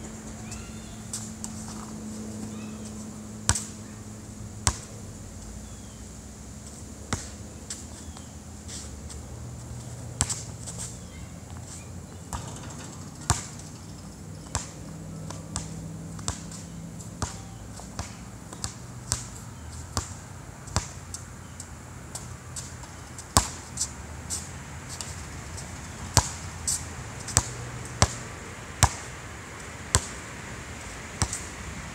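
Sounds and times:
basketball bouncing on asphalt: 0:04.6 - 0:04.9, 0:07.1 - 0:08.3, 0:09.8 - 0:23.9, 0:25.8 - 0:28.2, 0:28.8 - 0:29.1, 0:29.9 - 0:30.2, 0:31.2 - 0:31.5.

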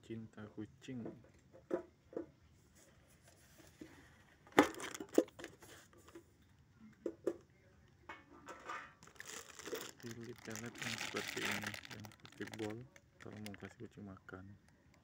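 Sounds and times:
cats crunching dry kibble: 0:09.0 - 0:13.7.

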